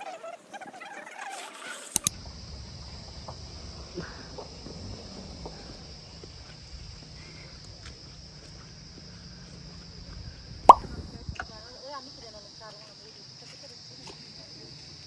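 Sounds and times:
insects droning: 0:00.0 - 0:15.0
low outdoor rumble: 0:02.1 - 0:12.2.

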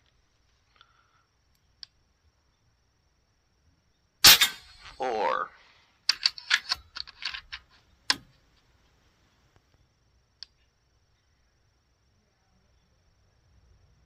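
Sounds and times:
air rifle mechanical clicks: 0:06.1 - 0:08.4.

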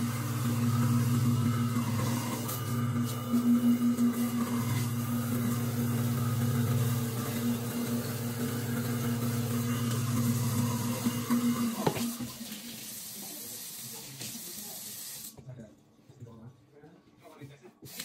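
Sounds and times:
tap water running into sink: 0:06.9 - 0:15.4.

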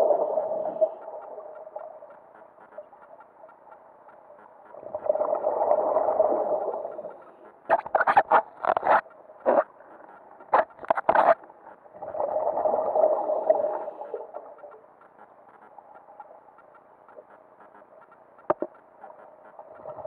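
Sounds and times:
exhaled air bubbling underwater: 0:00.0 - 0:02.9, 0:04.7 - 0:07.9, 0:11.9 - 0:14.9.

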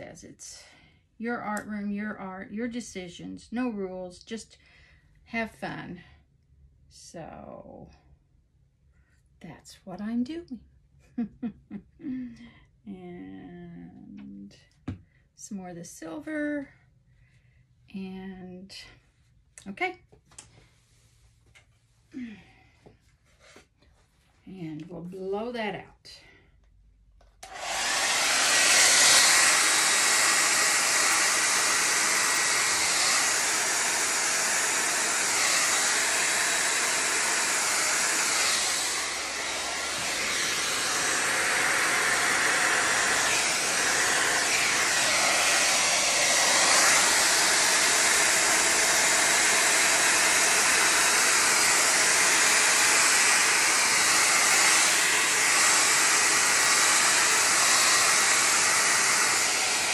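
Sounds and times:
electric blower running: 0:27.4 - 0:59.9.

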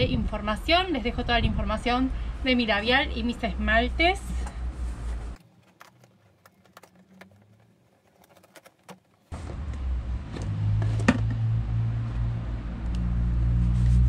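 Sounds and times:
steady low rumble: 0:00.0 - 0:05.4
cardboard box handling: 0:05.0 - 0:09.3.

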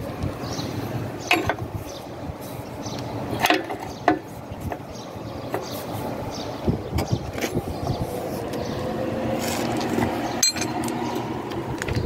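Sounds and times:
steady low rumble: 0:00.0 - 0:12.0
spanner clinking on metal fittings: 0:01.2 - 0:01.6, 0:09.4 - 0:11.3.

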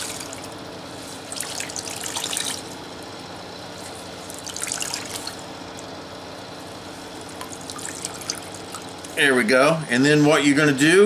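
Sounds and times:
water dripping from wrung laundry: 0:07.3 - 0:09.1.

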